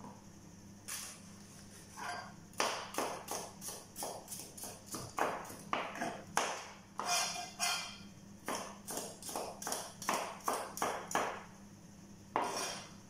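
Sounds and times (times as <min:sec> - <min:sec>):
knife chopping on plastic cutting board: 0:02.6 - 0:07.2, 0:08.4 - 0:11.4, 0:12.4 - 0:12.8.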